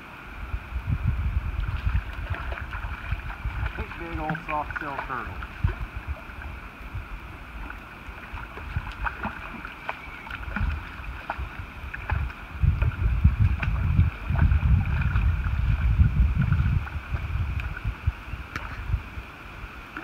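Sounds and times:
wind buffeting microphone: 0.0 - 20.0
turtle splashing in water: 1.5 - 19.0.

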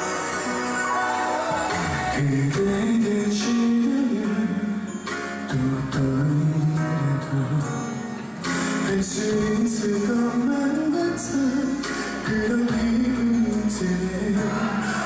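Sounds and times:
man singing with a band: 1.5 - 4.6.

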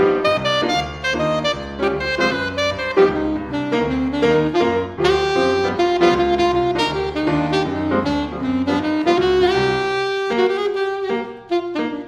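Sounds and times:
alto saxophone jazz melody: 0.0 - 12.0
piano accompaniment: 0.0 - 12.0.

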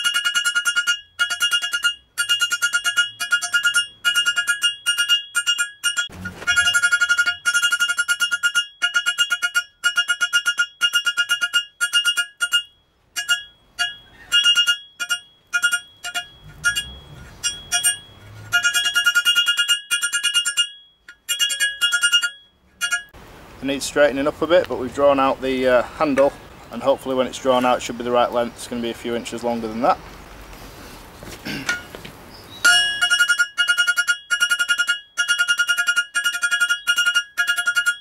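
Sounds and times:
hammer ringing on anvil: 32.6 - 38.0.

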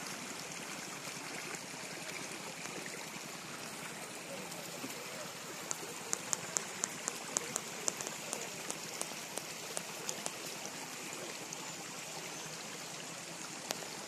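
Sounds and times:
stream running over rocks: 0.0 - 14.0
short high-pitched ticks: 5.6 - 10.5.

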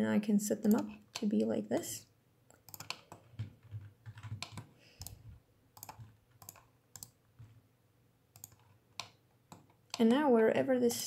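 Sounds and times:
keyboard keys clicking: 2.5 - 7.5, 8.3 - 10.1.

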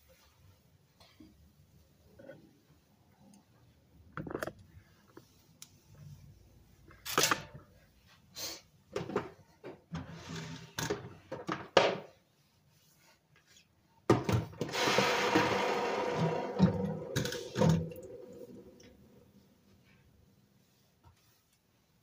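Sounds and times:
cloth wiping countertop: 5.0 - 7.0, 12.1 - 14.0, 14.7 - 22.0
loud steady rubbing noise: 14.7 - 18.7.

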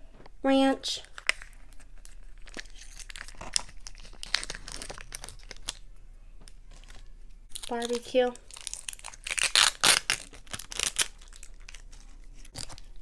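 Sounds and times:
plastic lid crinkling and peeling: 1.0 - 5.8.

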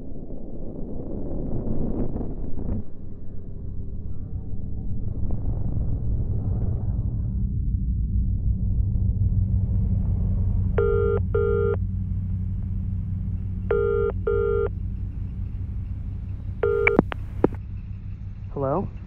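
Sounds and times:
low rumbling drone: 0.0 - 19.0
phone pickup clicks: 16.6 - 17.6.

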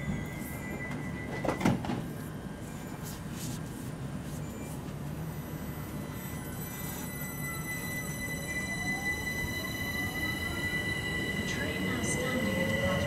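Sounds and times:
stationary train low hum: 0.0 - 13.0.

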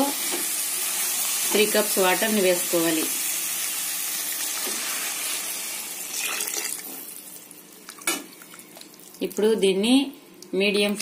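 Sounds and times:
water sizzling in hot pan: 0.0 - 7.5.

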